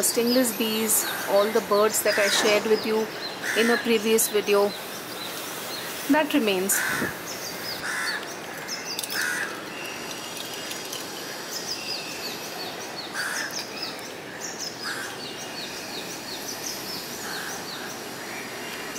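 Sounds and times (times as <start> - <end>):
outdoor background hiss: 0.0 - 18.9
small birds chirping: 0.0 - 18.9
crows cawing: 3.4 - 3.8, 6.8 - 7.2, 7.8 - 9.6, 13.1 - 13.6, 14.3 - 15.2.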